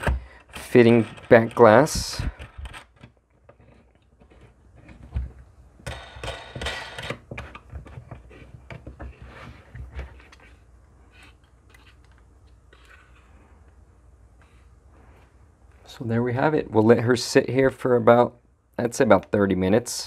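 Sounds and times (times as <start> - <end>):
metal plates knocking and scraping: 5.8 - 8.2.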